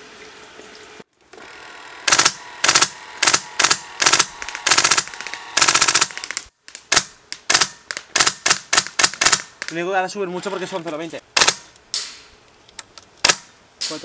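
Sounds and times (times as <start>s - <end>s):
airsoft gun firing bursts: 2.1s - 9.7s, 11.4s - 11.6s.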